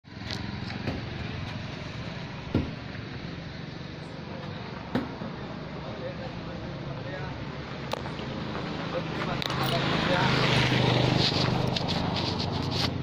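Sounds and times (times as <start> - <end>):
sharp knocks: 2.5 - 2.8.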